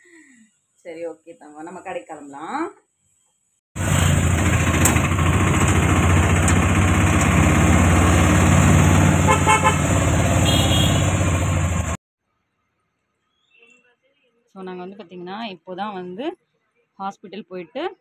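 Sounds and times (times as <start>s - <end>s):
road and traffic noise: 3.8s - 12.0s
vehicle engine rumble: 3.8s - 12.0s
horn beeping: 8.9s - 11.8s.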